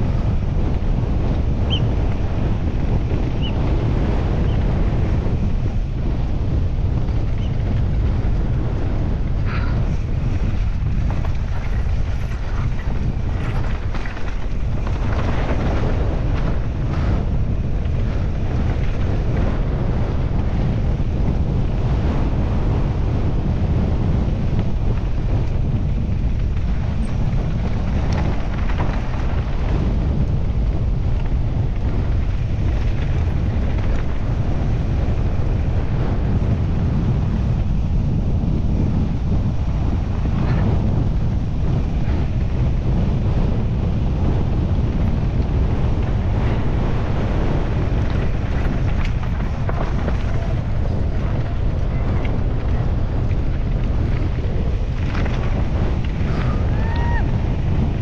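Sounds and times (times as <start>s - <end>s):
wind buffeting microphone: 0.0s - 58.0s
bike knocks and rattles: 6.6s - 21.5s, 24.9s - 35.2s, 44.6s - 57.2s.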